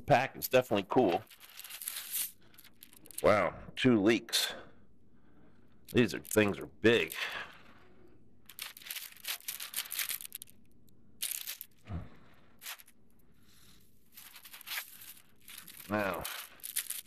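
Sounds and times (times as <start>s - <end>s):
plastic packaging crinkling: 0.9s - 3.3s, 5.8s - 7.7s, 8.4s - 11.8s, 12.5s - 13.0s, 14.1s - 17.0s.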